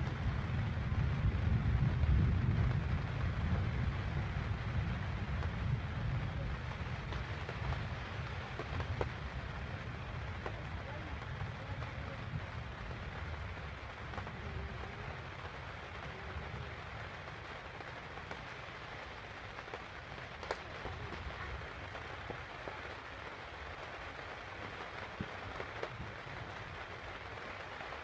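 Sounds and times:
low rumble: 0.0 - 15.3
rain on a caravan roof: 0.0 - 28.0.

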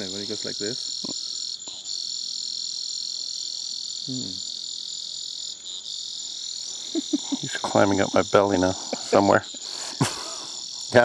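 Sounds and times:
insects and frogs chorus: 0.0 - 11.0
man's voice murmuring: 7.2 - 11.0.

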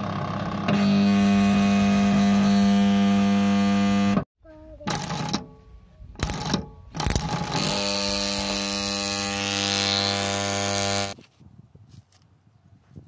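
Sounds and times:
loud electrical buzz with mains hum: 0.7 - 4.2, 7.6 - 11.2.

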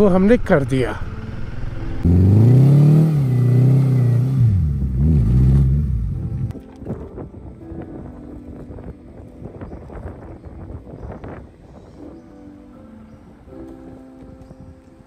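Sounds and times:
motorcycle engine accelerating: 0.0 - 6.5.

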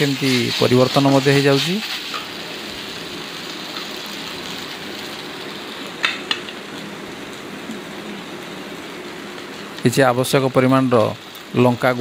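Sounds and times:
paste sizzling in oil: 0.0 - 6.8.

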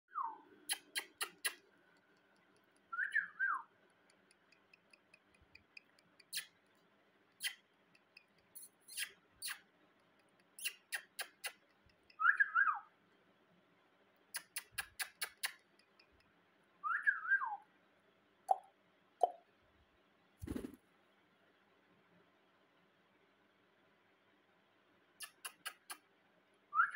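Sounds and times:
sharp clicks: 0.7 - 2.9, 3.8 - 6.8, 14.3 - 16.3, 25.2 - 26.0.

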